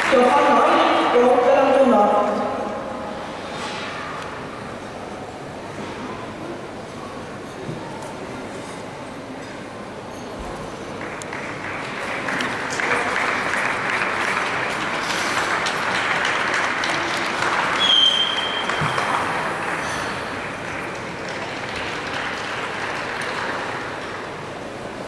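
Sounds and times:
audience applauding: 0.0s - 1.0s, 10.7s - 25.0s
high whistle: 17.8s - 19.1s.

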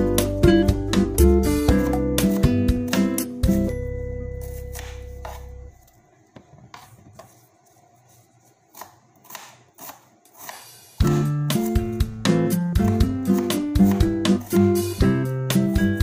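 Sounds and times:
acoustic guitar music: 0.0s - 5.7s, 11.0s - 16.0s
knife chopping onion: 1.7s - 3.8s, 4.4s - 5.8s, 6.7s - 16.0s.

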